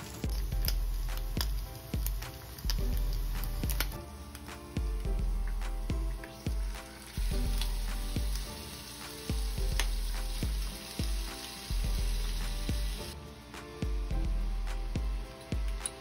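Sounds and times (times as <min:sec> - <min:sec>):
food sizzling in a frying pan: 0:00.0 - 0:04.7, 0:05.5 - 0:13.2.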